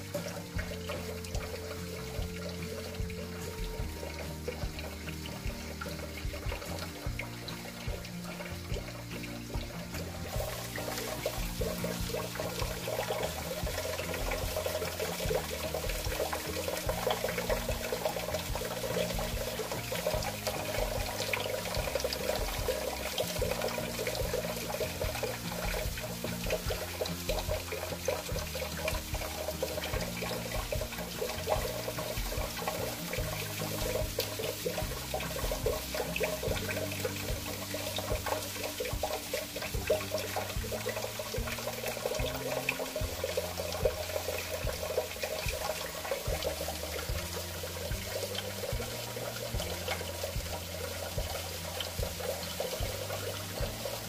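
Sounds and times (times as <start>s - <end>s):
soft background music: 0.0s - 54.0s
tap water running into sink: 0.0s - 54.0s.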